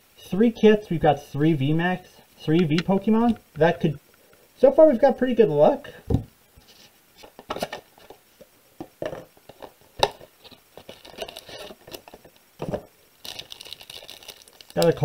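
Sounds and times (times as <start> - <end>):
cards and plastic wrapping rustling: 9.0 - 15.0.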